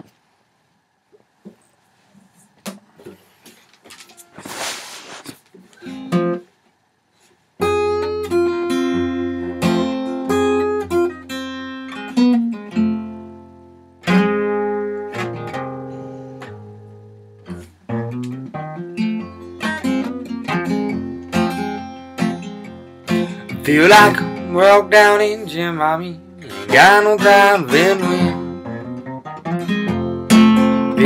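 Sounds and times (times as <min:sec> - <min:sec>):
acoustic guitar blues: 0:03.9 - 0:06.5, 0:07.6 - 0:31.0.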